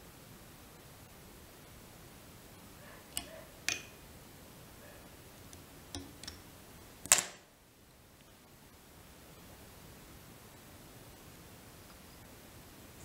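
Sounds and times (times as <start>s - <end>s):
metallic tool clicks: 3.2s - 4.0s, 5.9s - 6.4s, 7.0s - 7.4s.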